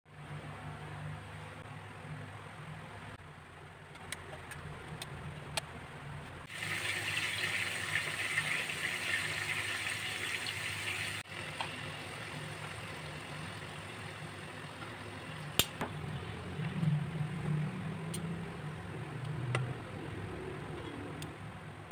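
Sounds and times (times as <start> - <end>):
meat sizzling in frying pan: 6.5 - 14.7.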